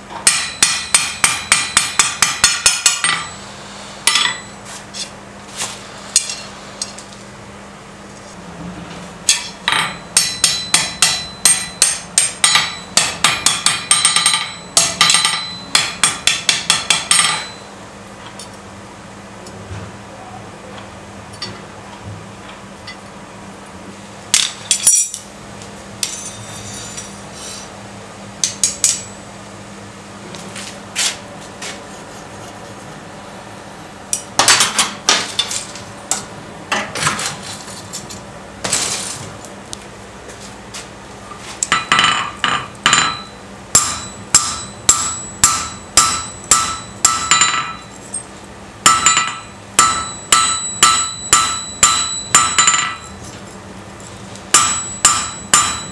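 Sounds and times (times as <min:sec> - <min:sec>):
hammer blows on anvil ringing: 0:00.2 - 0:03.5, 0:04.1 - 0:04.6, 0:09.3 - 0:17.7, 0:41.7 - 0:48.0, 0:48.8 - 0:53.2, 0:54.5 - 0:55.9
metal clanks and knocks: 0:48.9 - 0:53.2.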